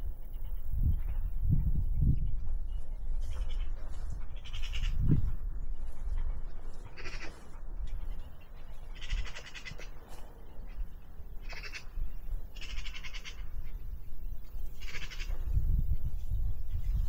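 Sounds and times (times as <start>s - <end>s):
wind rumble on microphone: 0.0s - 17.0s
rattling animal calls: 3.2s - 13.9s, 14.6s - 15.7s.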